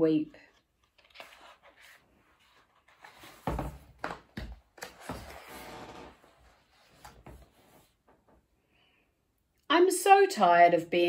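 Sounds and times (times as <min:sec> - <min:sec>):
book pages turning: 0:00.4 - 0:08.0
paper rustle: 0:00.5 - 0:03.7.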